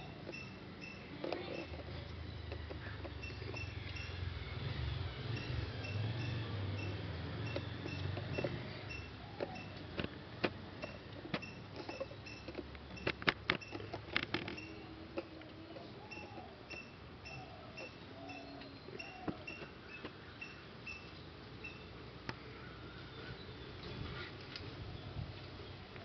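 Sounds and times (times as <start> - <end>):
high even chirp: 16.0 - 21.9.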